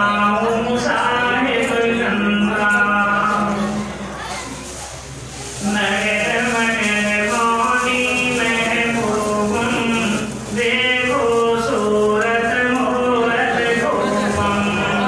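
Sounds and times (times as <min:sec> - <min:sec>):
man chanting melodically: 0:00.0 - 0:04.0, 0:05.6 - 0:15.0.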